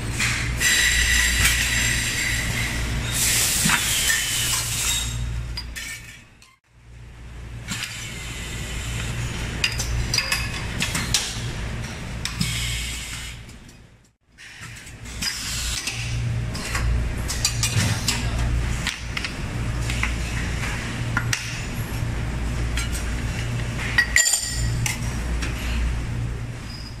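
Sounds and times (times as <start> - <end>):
low machine hum: 6.7 - 14.2, 14.8 - 27.0.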